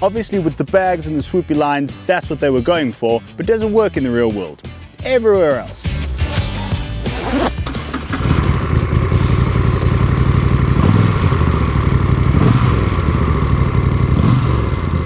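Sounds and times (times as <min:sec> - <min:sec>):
motorcycle engine idling and revving: 0:06.2 - 0:15.0.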